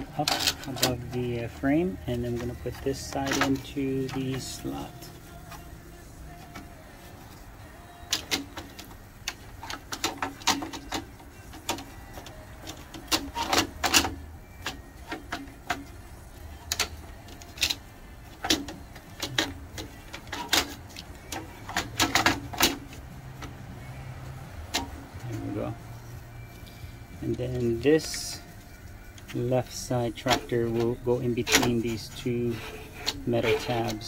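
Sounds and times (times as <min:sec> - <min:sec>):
plastic clicking against metal frame: 0:02.1 - 0:04.9, 0:18.4 - 0:23.6, 0:30.2 - 0:34.0.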